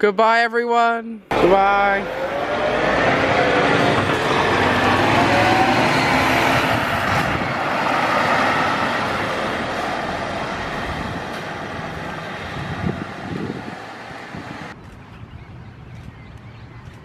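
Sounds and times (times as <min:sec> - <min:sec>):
coach pulling away: 0:01.3 - 0:14.8.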